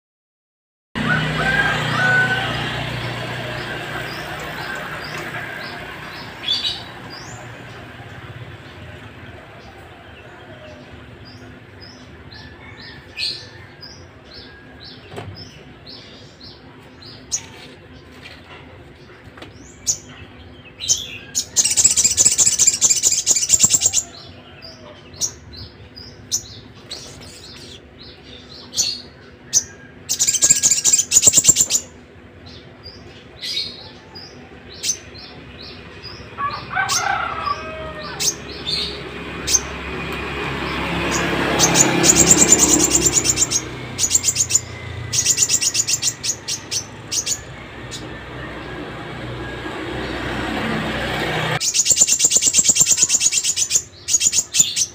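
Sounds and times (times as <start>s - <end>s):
songbird chirping: 1.5s - 54.9s
songbird fast trill: 20.9s - 24.3s, 30.1s - 32.0s, 41.6s - 47.5s, 51.6s - 54.9s.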